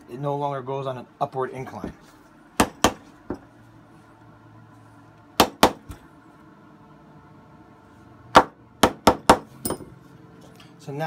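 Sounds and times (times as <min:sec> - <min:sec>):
small hammer tapping metal: 0:08.8 - 0:09.9.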